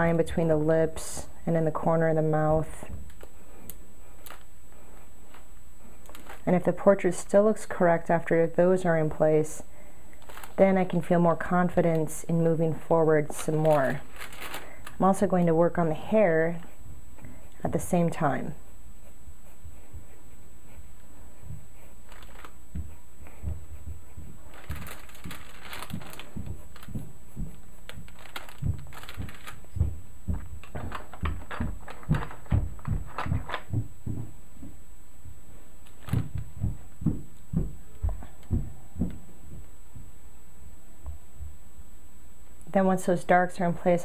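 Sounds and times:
steady low hum: 0.0s - 44.0s
paper rustling: 3.0s - 6.6s, 10.2s - 10.9s, 12.8s - 15.3s, 21.8s - 33.7s, 35.8s - 36.4s
pencil strokes on paper: 15.0s - 30.0s.

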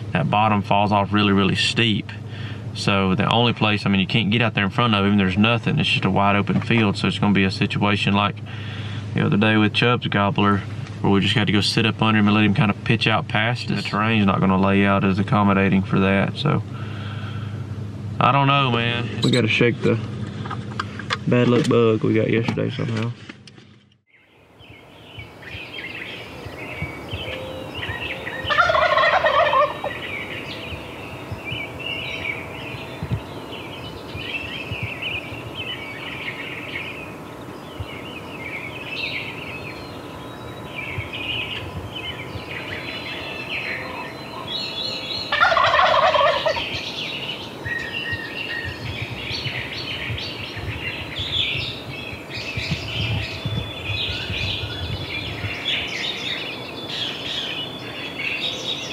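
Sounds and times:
songbirds chirping: 0.0s - 58.9s
turkey gobbling: 27.2s - 30.6s, 42.4s - 48.7s.

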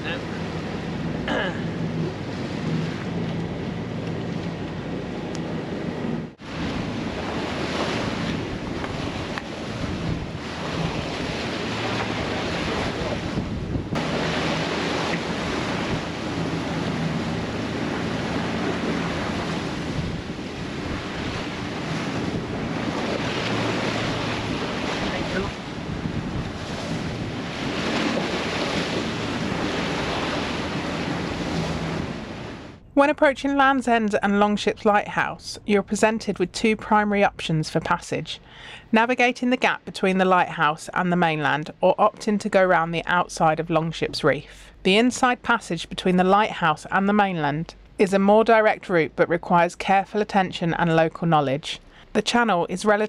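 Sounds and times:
waves rushing past boat: 0.0s - 33.8s
wind buffeting microphone: 0.0s - 36.6s.

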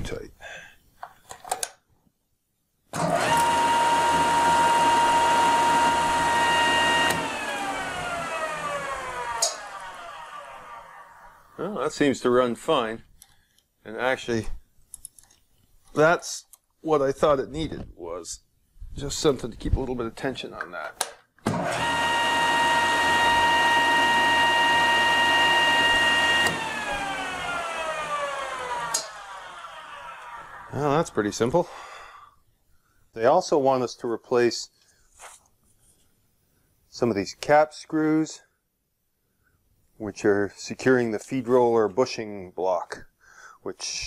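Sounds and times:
planer whining and winding down: 3.0s - 11.7s, 21.5s - 30.8s.

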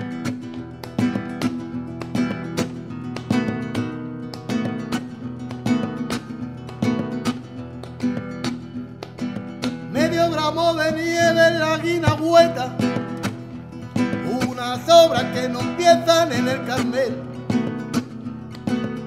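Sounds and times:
acoustic guitar strummed: 0.0s - 19.0s
man singing: 9.9s - 18.1s.

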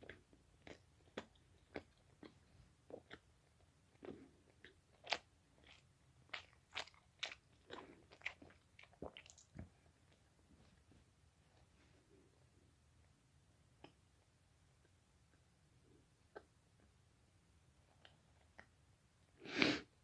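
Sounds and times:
person chewing: 0.0s - 9.6s.

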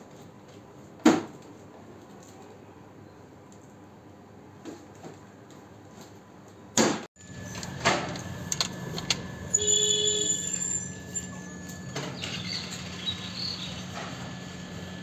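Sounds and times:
steady low hum: 7.2s - 15.0s
bird chirping: 10.4s - 14.0s.

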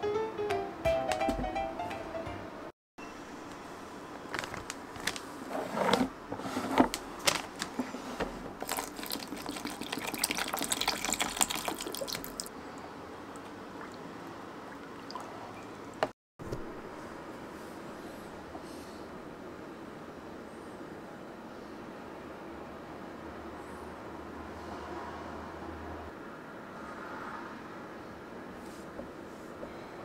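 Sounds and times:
plastic packet crackling: 4.3s - 5.4s, 6.9s - 7.8s, 8.6s - 9.9s
water pouring into plastic tray: 8.6s - 12.5s.

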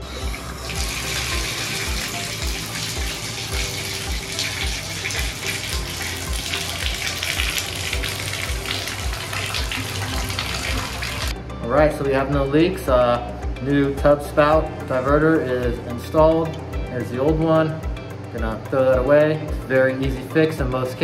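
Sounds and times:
water running into bathtub: 0.0s - 11.4s.

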